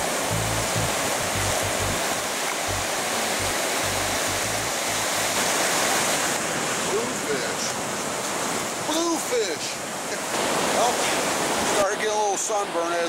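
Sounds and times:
surf breaking on beach: 0.0 - 13.0
background music bass line: 0.3 - 2.0, 2.7 - 4.7.

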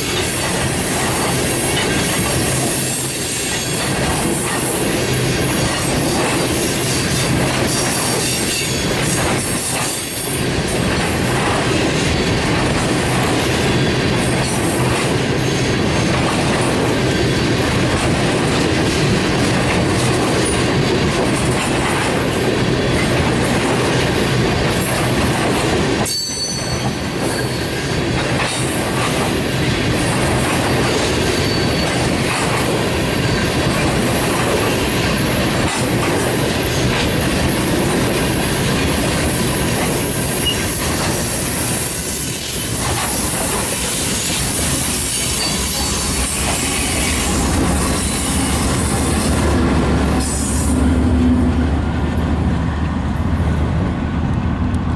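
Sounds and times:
clickety-clack over rail joints: 0.0 - 54.9
train wheels rumbling on rail: 0.0 - 54.9
thin wheel squeal: 43.7 - 47.3.

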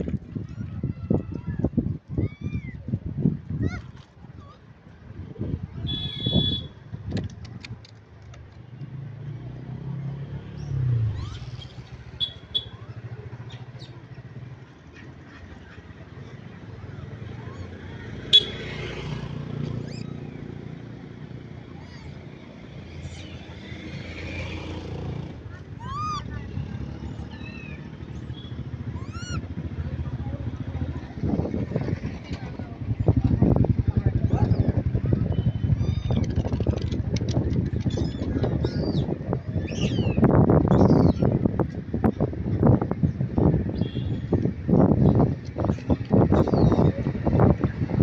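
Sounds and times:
vehicle engine humming: 7.3 - 48.0
monkey coo call: 28.9 - 29.5.

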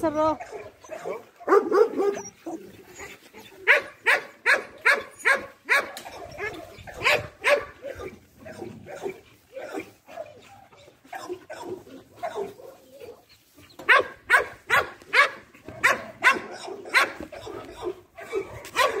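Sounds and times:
dog barking: 0.4 - 2.3, 3.7 - 8.1, 11.1 - 12.8, 13.8 - 19.0.

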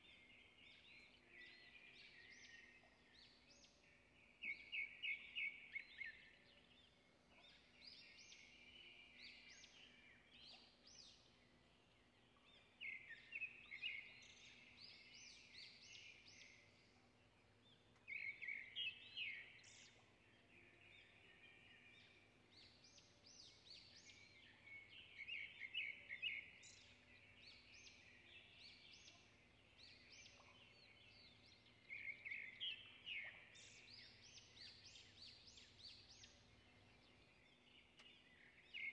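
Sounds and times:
birds chirping: 0.0 - 38.9.

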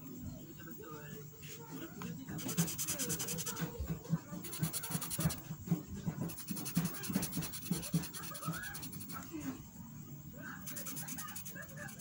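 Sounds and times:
felt-tip marker scratching on paper: 2.3 - 9.3, 10.6 - 12.0.

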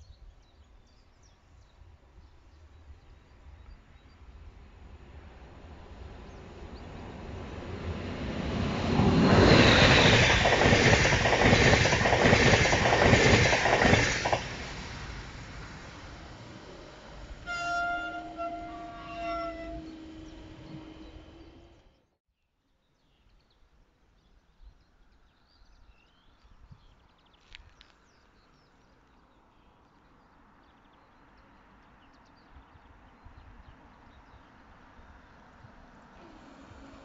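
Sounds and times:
train rumbling past: 1.8 - 22.0, 34.3 - 37.0
train horn: 16.3 - 21.8, 36.1 - 37.0.

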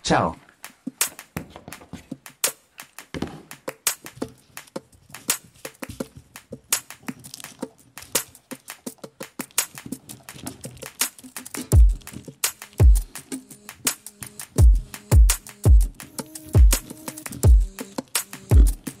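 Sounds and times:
earphone cable crackling: 0.5 - 14.5
crinkly paper rustling: 4.1 - 12.6.

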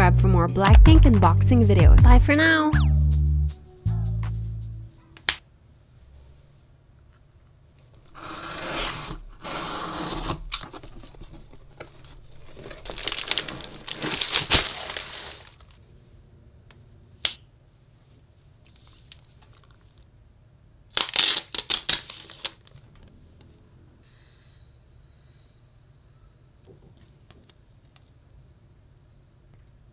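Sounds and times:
box cutter slitting packing tape: 8.2 - 10.7, 20.9 - 22.6
bubble wrap crinkling: 10.8 - 15.8, 20.9 - 22.9.

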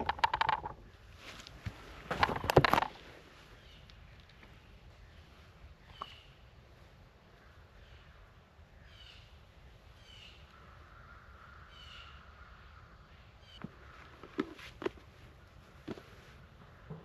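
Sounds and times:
faint harsh animal calls: 10.1 - 14.1.

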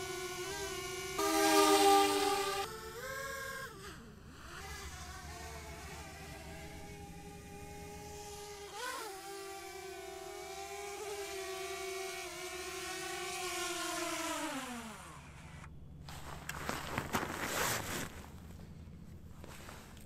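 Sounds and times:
engine running at high revs: 3.6 - 13.7.

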